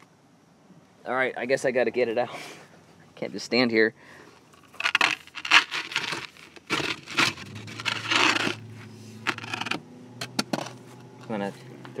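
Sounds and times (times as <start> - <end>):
wooden peel scraping oven floor: 5.4 - 9.8.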